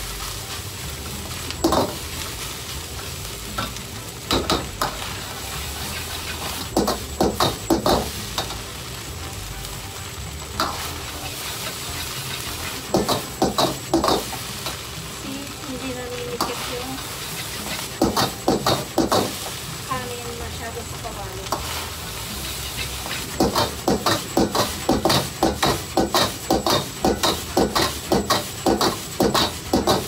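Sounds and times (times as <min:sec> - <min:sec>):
rice sizzling: 0:00.0 - 0:30.0
metal ladle scraping a wok: 0:04.9 - 0:06.7, 0:10.6 - 0:14.4, 0:16.5 - 0:19.4, 0:21.6 - 0:30.0.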